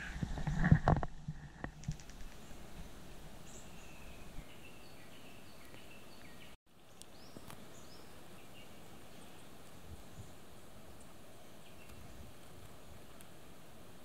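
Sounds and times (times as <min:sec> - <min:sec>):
high chirping of birds and frogs: 0:02.3 - 0:10.3, 0:11.0 - 0:12.2.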